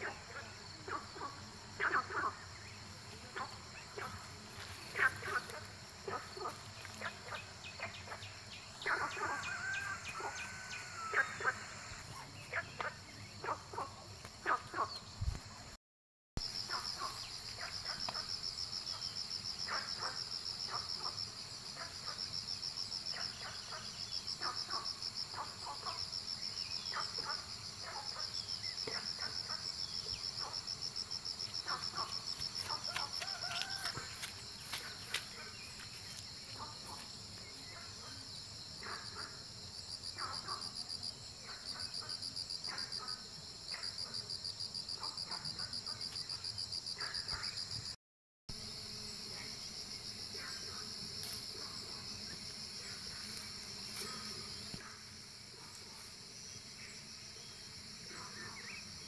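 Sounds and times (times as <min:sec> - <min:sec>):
higher insect trill: 0:00.0 - 0:14.9.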